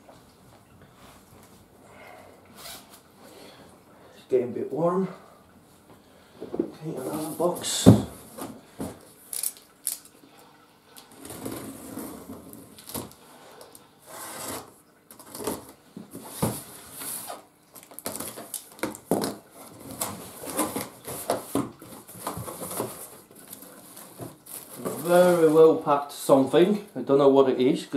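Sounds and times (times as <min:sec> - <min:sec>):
packing tape being slit: 0:09.3 - 0:10.1, 0:12.5 - 0:13.2, 0:14.1 - 0:21.6.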